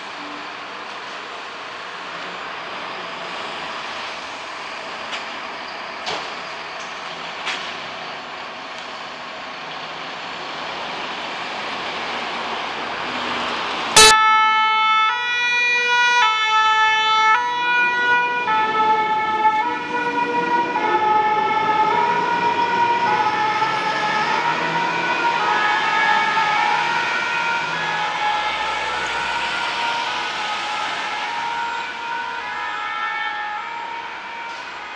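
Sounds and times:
fire engines running: 0.0s - 34.9s
two-tone fire engine siren: 13.9s - 34.9s.

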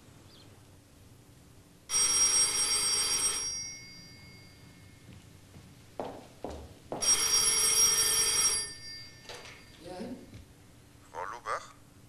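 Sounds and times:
telephone bell ringing: 1.9s - 5.0s, 7.0s - 10.2s.

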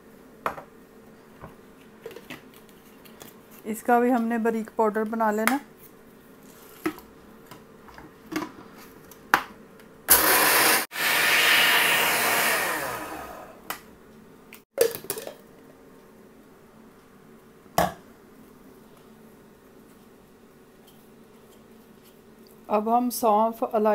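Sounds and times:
blender grinding seeds: 10.1s - 13.6s.

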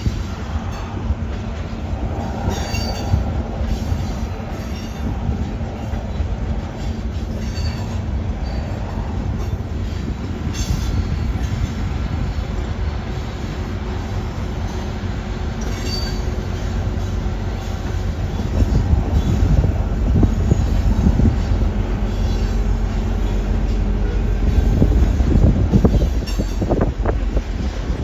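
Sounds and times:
locomotive engine: 0.0s - 28.0s
train wheels clattering on rail: 0.0s - 28.0s.

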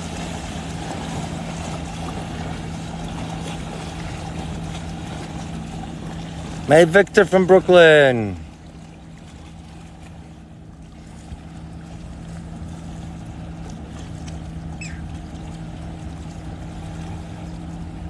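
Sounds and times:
boat engine droning: 0.0s - 18.0s
water wash rumbling: 0.0s - 18.0s
short high chirp: 14.8s - 15.1s.

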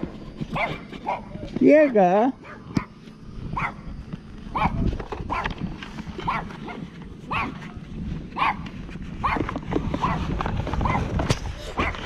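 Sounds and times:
dog barking: 0.6s - 1.4s, 2.4s - 2.9s, 3.5s - 3.8s, 4.5s - 5.5s, 6.2s - 7.6s, 8.4s - 8.6s, 10.0s - 10.2s, 10.8s - 11.0s.

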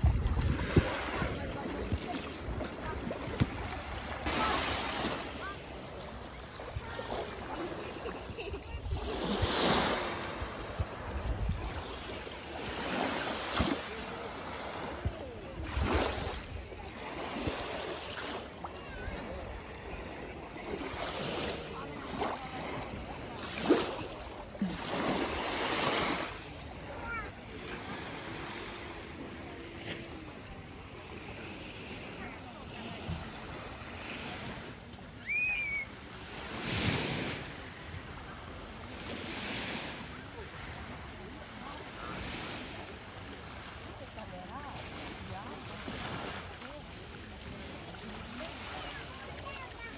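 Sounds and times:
wind buffeting microphone: 0.0s - 4.2s
small waves lapping on shore: 0.0s - 49.9s
short high-pitched cry: 35.2s - 35.9s.

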